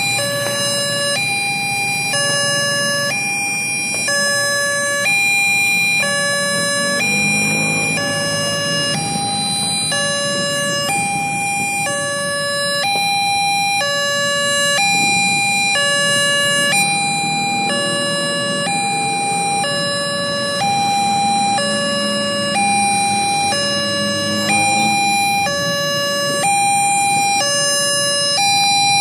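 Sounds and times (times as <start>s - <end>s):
idling motorbike and car engines: 0.0s - 29.0s
level crossing two-tone alarm: 0.0s - 29.0s
train passing: 6.0s - 12.5s.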